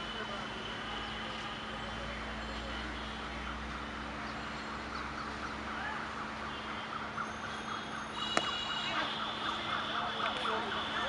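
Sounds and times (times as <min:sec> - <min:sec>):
city hum: 0:00.0 - 0:11.0
high ringing tone: 0:08.0 - 0:09.1.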